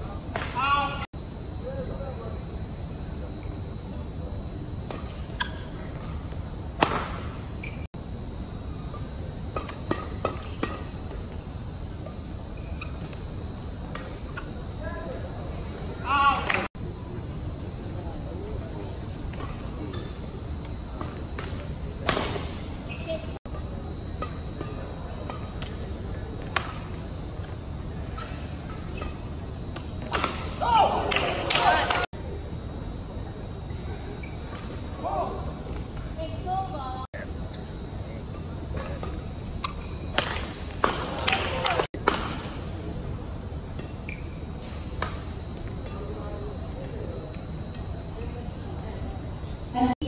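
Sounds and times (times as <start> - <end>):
faint high hum: 0.0 - 50.0
court shoes squeaking: 4.8 - 15.2, 19.1 - 32.1, 33.6 - 35.0, 37.5 - 42.2, 43.7 - 46.2
racket hitting shuttlecock: 6.8 - 7.4, 26.4 - 26.9, 30.0 - 32.1, 38.8 - 41.1, 41.7 - 42.5.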